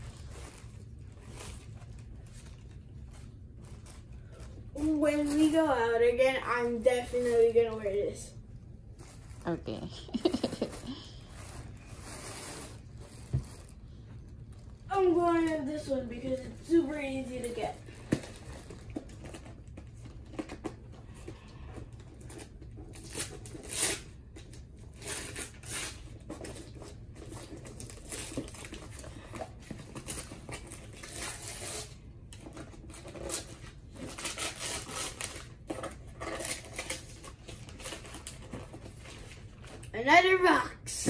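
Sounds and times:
wrapping paper tearing: 0.0s - 7.7s, 10.2s - 13.8s, 22.2s - 39.9s
tissue paper rustling: 0.0s - 8.0s, 8.8s - 19.2s.

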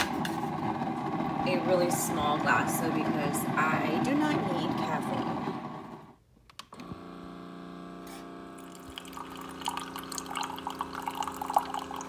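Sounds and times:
pump humming: 6.8s - 12.0s
coffee trickling into a mug: 8.6s - 12.0s.

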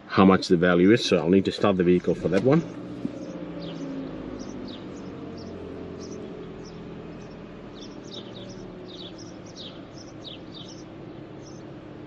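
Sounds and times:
car engine idling: 0.0s - 12.0s
short bird chirps: 3.2s - 11.6s.

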